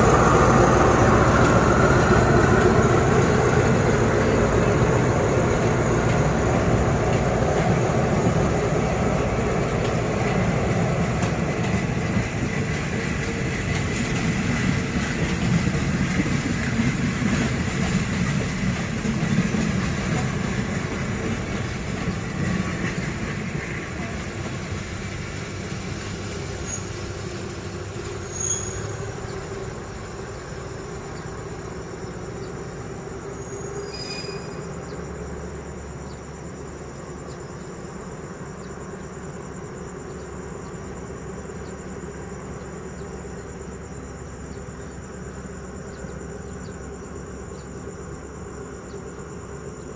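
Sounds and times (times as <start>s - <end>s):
crickets chirping: 0.0s - 49.9s
train coaches rumbling: 0.0s - 49.9s
metallic wheel squeaks: 33.8s - 34.6s.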